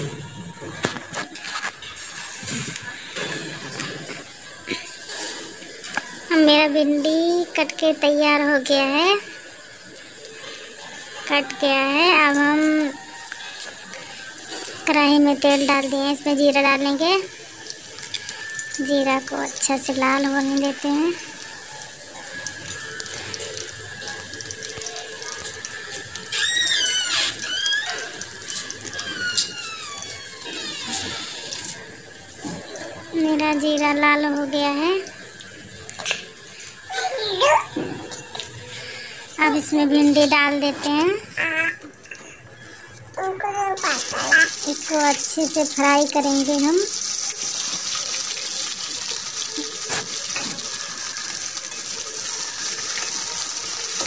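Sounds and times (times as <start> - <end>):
seeds sizzling in hot oil: 10.7 - 32.4, 43.8 - 54.0.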